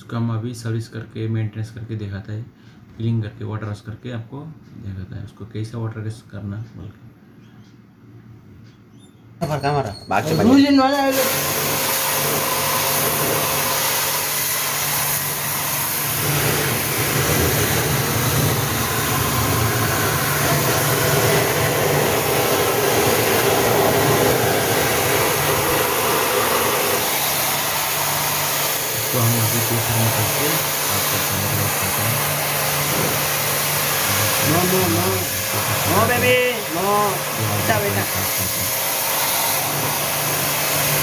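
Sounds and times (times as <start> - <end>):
water jet spraying sheet metal: 10.3 - 41.0
pressure washer motor humming: 10.4 - 41.0.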